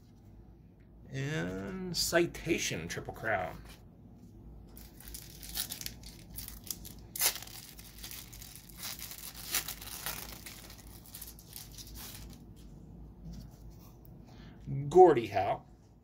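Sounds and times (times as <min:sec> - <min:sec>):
foil wrapper tearing and crinkling: 0:04.8 - 0:12.4.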